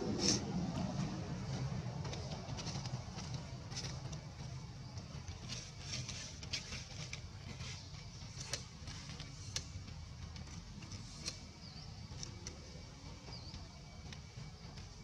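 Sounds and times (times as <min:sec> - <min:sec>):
low rumble: 0:00.0 - 0:05.3
light clicks and crackles: 0:00.2 - 0:12.9.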